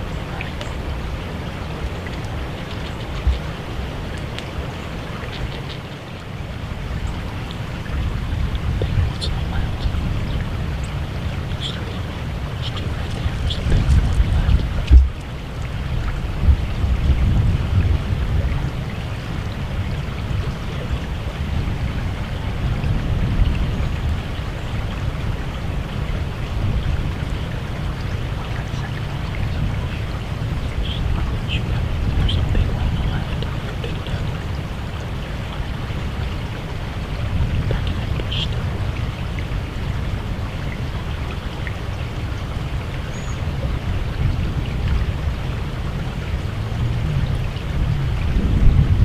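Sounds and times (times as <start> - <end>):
steady hiss: 0.0 - 16.8
wind buffeting microphone: 0.0 - 49.0.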